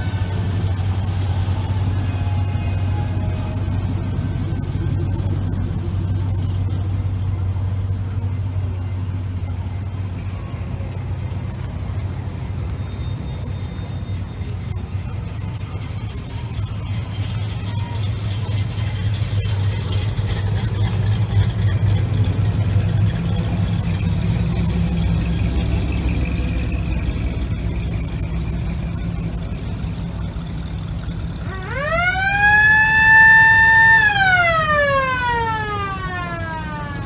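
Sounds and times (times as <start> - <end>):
car engines rumbling: 0.0 - 37.0
siren winding up and down: 31.4 - 37.0.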